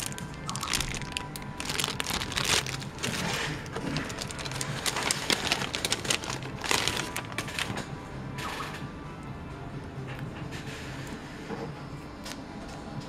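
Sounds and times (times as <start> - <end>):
plastic bags crinkling: 0.0 - 7.8.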